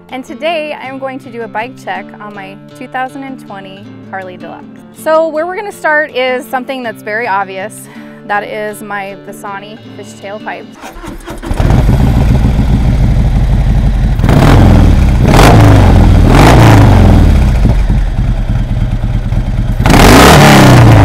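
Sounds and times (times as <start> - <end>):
motorcycle engine revving: 10.8 - 21.0.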